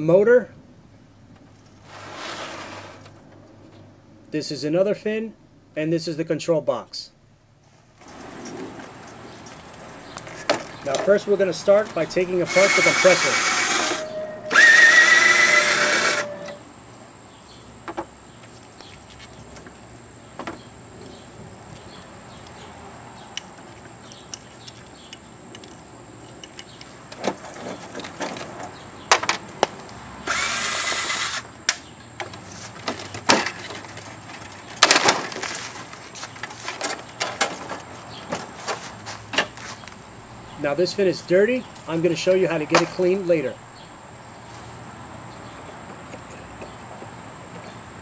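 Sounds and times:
power drill spinning up: 0:12.5 - 0:16.6, 0:30.3 - 0:31.5
metal parts clicking and knocking: 0:24.0 - 0:27.2.

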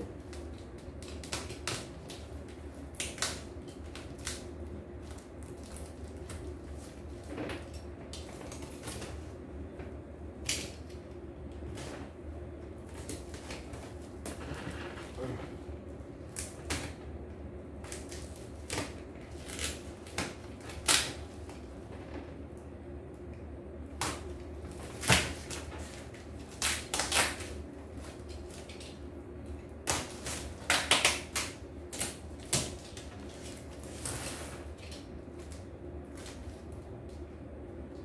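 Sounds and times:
cardboard and tape scraping: 0:32.0 - 0:34.9.

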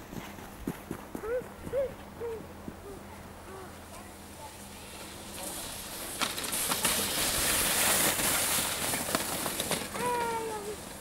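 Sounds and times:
child calling: 0:01.2 - 0:04.6, 0:10.0 - 0:10.8
sled runners scraping over snow: 0:04.8 - 0:11.0.

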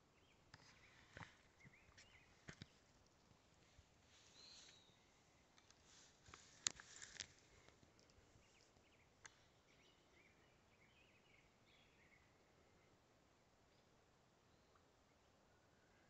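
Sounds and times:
faint small bird chirps: 0:04.2 - 0:05.2
clicks and rustles in branches: 0:05.6 - 0:08.2.

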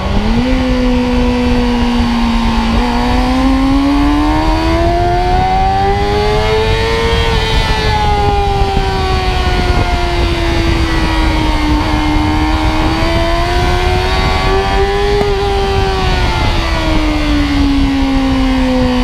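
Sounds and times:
motorcycle engine at high revs: 0:00.0 - 0:19.0
wind rush on microphone: 0:00.0 - 0:19.0.

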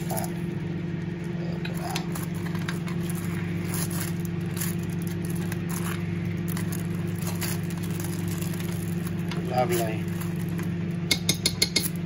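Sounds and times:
low machine hum: 0:00.0 - 0:12.0
plastic bag crinkling: 0:01.7 - 0:11.0.

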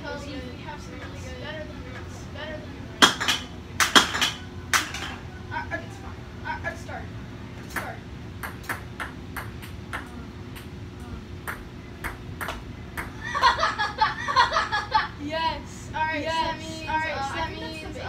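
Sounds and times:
ping-pong ball bouncing: 0:07.7 - 0:10.7, 0:11.4 - 0:13.2.

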